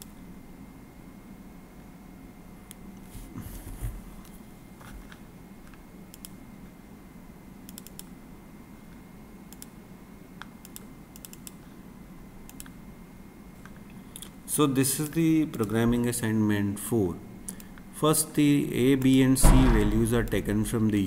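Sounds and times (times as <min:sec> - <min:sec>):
steady low hum: 0:00.0 - 0:21.0
mouse and keyboard clicks: 0:07.7 - 0:08.1, 0:10.6 - 0:11.6
dull thump: 0:19.4 - 0:20.2.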